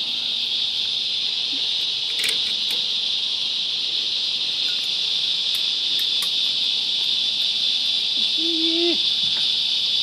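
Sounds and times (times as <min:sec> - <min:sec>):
crickets chorus: 0:00.0 - 0:10.0
metal tongs clicking on grill grate: 0:01.8 - 0:02.9, 0:04.7 - 0:06.5.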